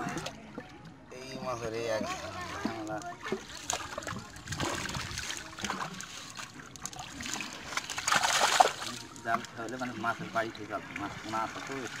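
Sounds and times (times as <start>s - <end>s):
water trickling and splashing: 0.0s - 12.0s
loud water splash: 7.1s - 9.0s.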